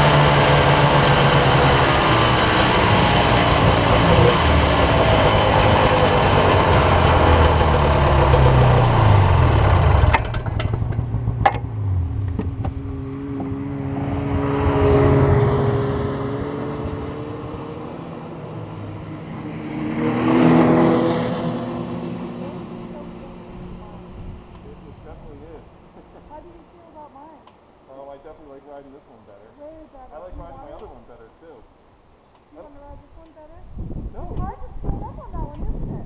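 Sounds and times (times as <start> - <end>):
snowmobile passing by: 0.0 - 10.2, 12.8 - 25.6
snowmobile engine running: 0.0 - 16.0
wind rush: 32.9 - 36.0.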